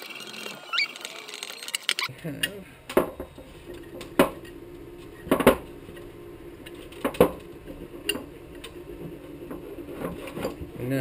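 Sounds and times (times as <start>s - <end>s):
small hard parts clicking: 0.0s - 4.6s
faint steady hum: 2.1s - 11.0s.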